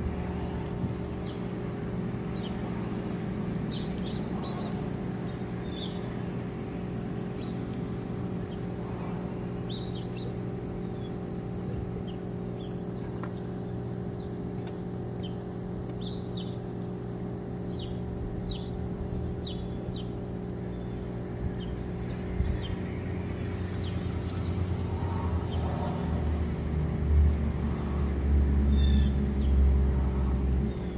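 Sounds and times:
insects trilling: 0.0 - 30.9
low steady hum: 0.0 - 30.9
bird chirps: 17.7 - 22.9.

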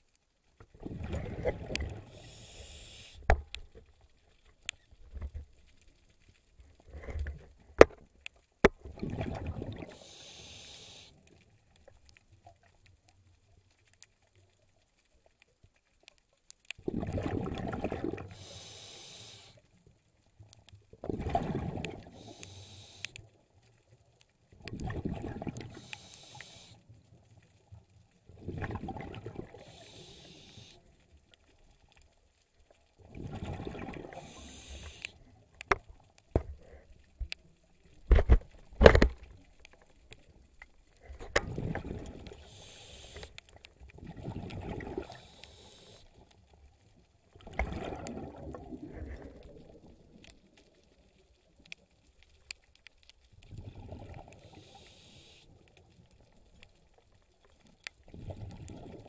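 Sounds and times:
exhaled bubbles rumbling: 0.7 - 2.2, 8.8 - 10.0, 16.8 - 18.4, 21.0 - 22.1, 24.6 - 25.8, 28.3 - 29.7, 33.0 - 34.6, 41.0 - 42.6, 43.7 - 45.2, 47.3 - 50.6, 53.4 - 54.5, 58.0 - 59.0.

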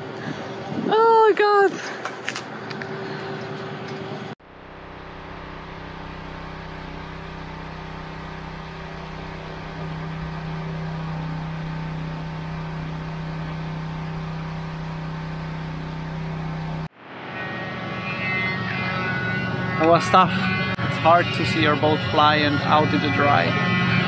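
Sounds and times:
outdoor noise: 0.0 - 21.0
pressure washer motor hum: 4.4 - 16.9
water jet hissing: 4.6 - 16.9.

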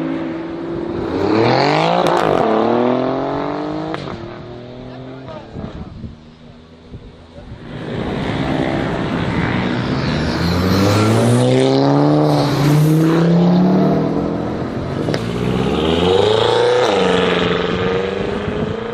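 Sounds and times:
car engine accelerating hard: 7.6 - 18.9.

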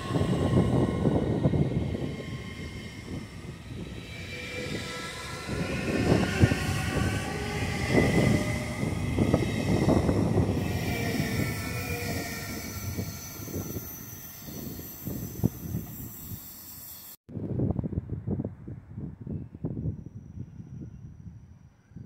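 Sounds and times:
train wheels running on rails: 0.0 - 17.2.

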